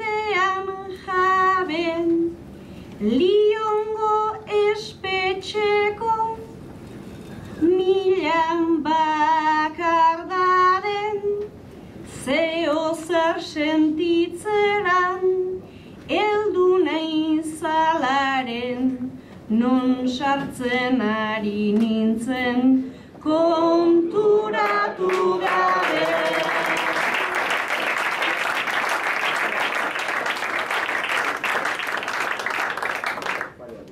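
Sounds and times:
woman singing unaccompanied: 0.0 - 2.4, 3.0 - 6.5, 7.6 - 11.5, 12.1 - 27.4.

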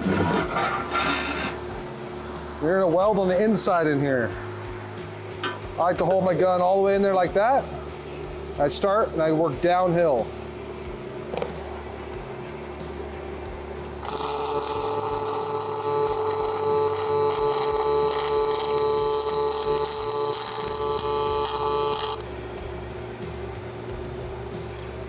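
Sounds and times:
welder hum: 0.0 - 25.0
welding arc frying hiss: 13.9 - 22.2.

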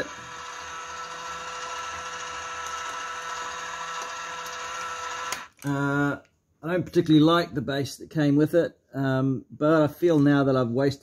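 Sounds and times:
small electric motor whine: 0.0 - 5.6.

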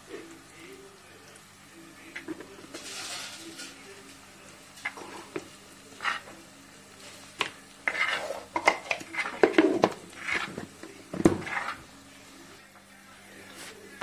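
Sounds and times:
metal spoon scraping clay pot: 7.8 - 8.6.

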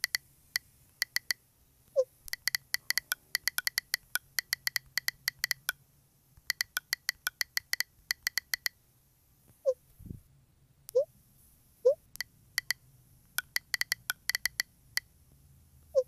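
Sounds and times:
phone keyboard tap clicks: 0.0 - 0.2, 1.0 - 1.4, 2.3 - 5.8, 6.4 - 8.8, 12.2 - 15.1.

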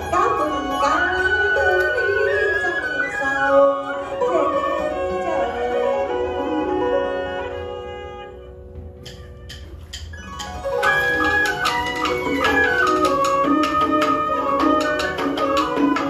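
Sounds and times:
bowed string melody: 0.0 - 16.0.

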